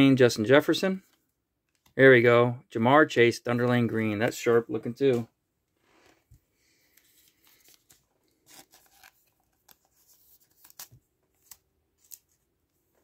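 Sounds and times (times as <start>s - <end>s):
trading cards handled by hand: 6.0s - 13.0s.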